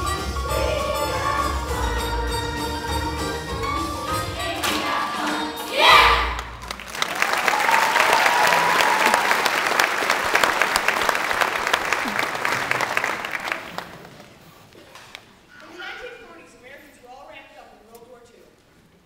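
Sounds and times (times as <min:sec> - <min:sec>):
audience cheering: 0:05.8 - 0:14.1
audience applauding: 0:06.3 - 0:14.6.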